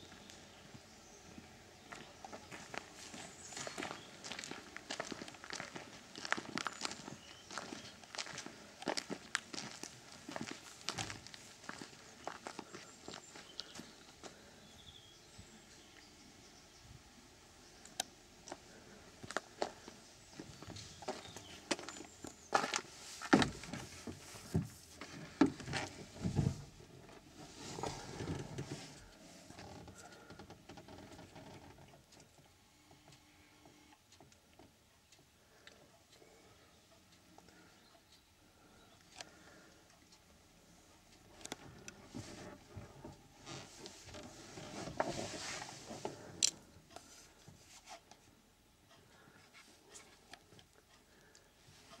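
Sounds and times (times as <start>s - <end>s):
rustling: 18.5s - 31.8s, 41.3s - 48.4s
fabric rustling: 43.4s - 46.3s.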